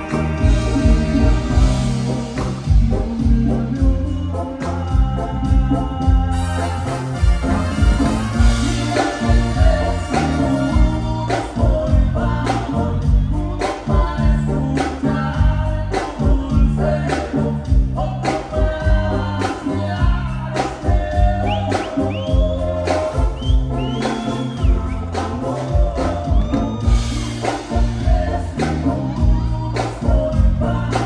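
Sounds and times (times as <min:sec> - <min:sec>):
brass band music: 0:00.0 - 0:31.0
singing: 0:00.0 - 0:31.0
high gliding whistles: 0:21.5 - 0:25.2.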